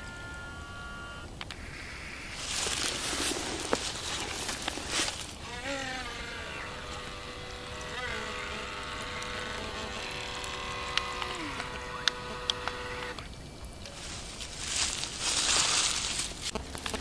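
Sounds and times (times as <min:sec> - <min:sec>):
electric motor whining: 0:00.0 - 0:13.4
sharp clicks: 0:09.1 - 0:13.9.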